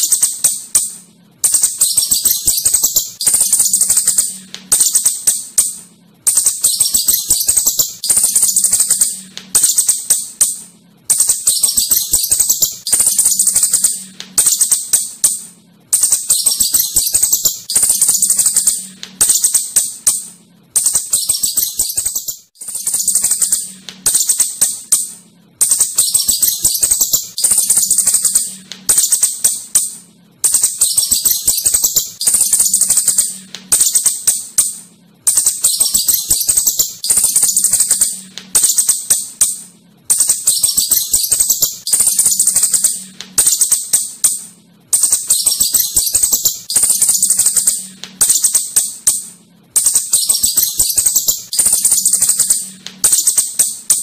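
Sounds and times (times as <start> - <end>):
shrew shrill chattering: 11.2 - 15.2, 16.0 - 25.1, 35.3 - 39.4.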